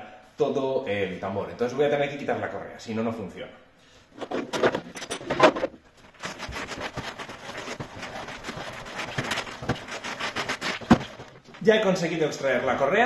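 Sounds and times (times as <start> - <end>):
hands removing drive belt: 4.2 - 11.6.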